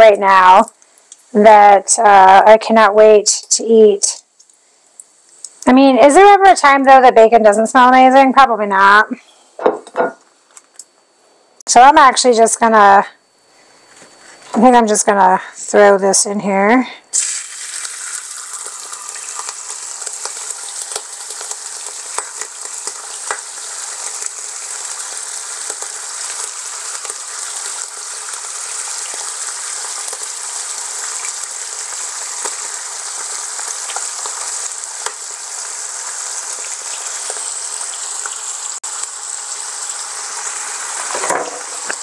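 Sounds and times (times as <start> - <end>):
bacon sizzling in a pan: 17.1 - 42.0
grease popping and crackling: 17.4 - 30.4.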